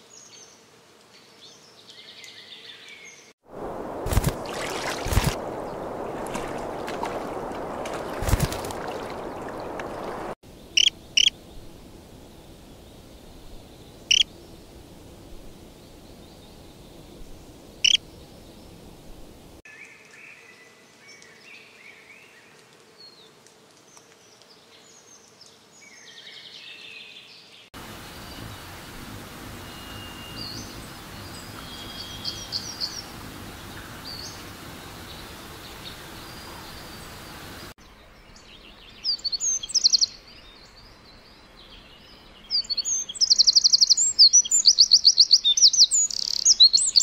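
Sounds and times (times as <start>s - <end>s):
songbird chirping: 0.1s - 14.8s, 15.6s - 22.5s, 24.0s - 47.0s
stream water rushing: 3.4s - 10.4s, 27.8s - 37.8s
sharp loud bird calls: 4.1s - 11.3s.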